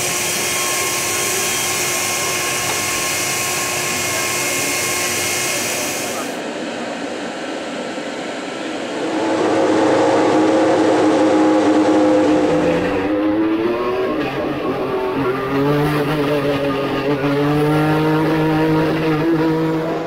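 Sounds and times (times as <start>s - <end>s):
deeper engine note pulling away: 8.8s - 20.0s
racing car engine running: 8.9s - 20.0s.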